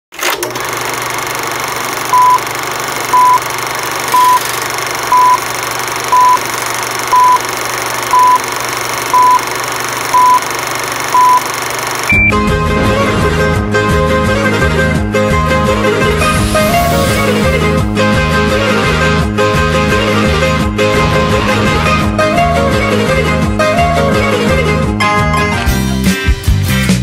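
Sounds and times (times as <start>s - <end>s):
projector whir and hiss: 0.7s - 12.1s
higher beep: 3.2s - 3.4s, 4.2s - 4.4s, 5.1s - 5.4s, 6.1s - 6.4s, 7.1s - 7.4s, 8.1s - 8.4s, 9.1s - 9.4s, 10.2s - 10.4s, 11.2s - 11.4s, 12.1s - 12.4s
short beeps: 3.2s - 3.4s, 4.2s - 4.4s, 5.1s - 5.4s, 6.1s - 6.4s, 7.1s - 7.4s, 8.1s - 8.4s, 9.1s - 9.4s, 10.2s - 10.4s, 11.2s - 11.4s, 12.1s - 12.4s
music: 12.1s - 27.0s.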